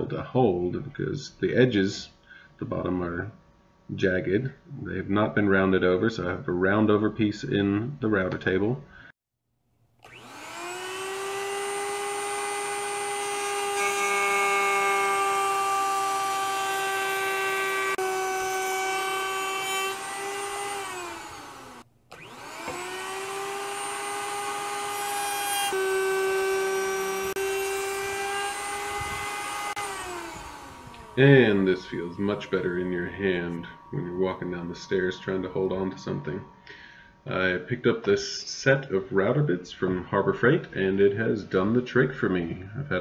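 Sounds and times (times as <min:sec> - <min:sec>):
router high whine: 0:10.0 - 0:36.7.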